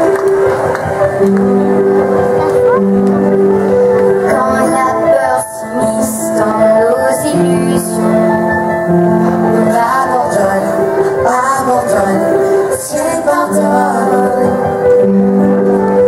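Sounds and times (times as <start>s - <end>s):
musical theatre song over speakers: 0.0s - 16.0s
woman singing: 4.2s - 8.5s, 9.4s - 14.9s.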